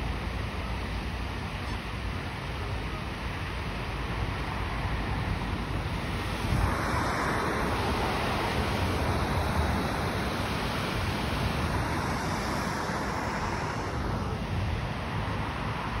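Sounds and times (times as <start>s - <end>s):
wind buffeting microphone: 4.7s - 16.0s.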